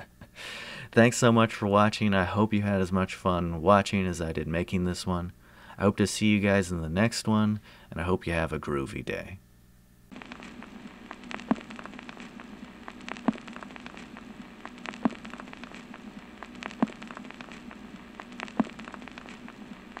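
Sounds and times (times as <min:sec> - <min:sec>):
low hum: 0:09.8 - 0:20.0
crackle and hiss: 0:10.1 - 0:20.0.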